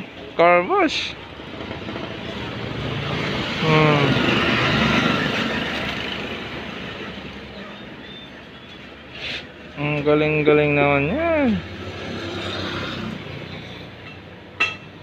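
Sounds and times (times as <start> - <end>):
vehicle passing on road: 1.1 - 15.0.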